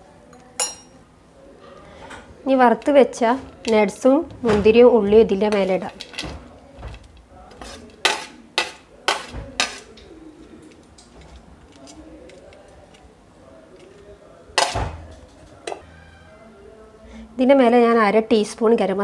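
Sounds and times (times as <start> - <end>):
metal spoon clinking on a plate: 0.3 - 1.0, 7.5 - 10.0.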